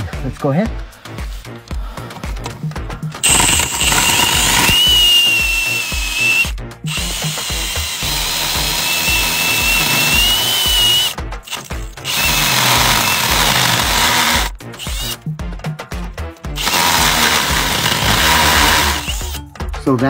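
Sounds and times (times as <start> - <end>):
bit grinding plastic pipe: 3.2 - 15.2, 16.6 - 19.4
power drill whining: 3.2 - 15.2, 16.6 - 19.4.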